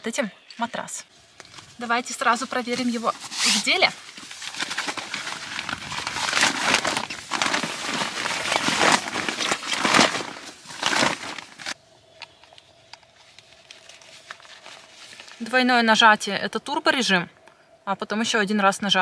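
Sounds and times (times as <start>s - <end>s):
crinkling handling noise: 0.6s - 15.6s.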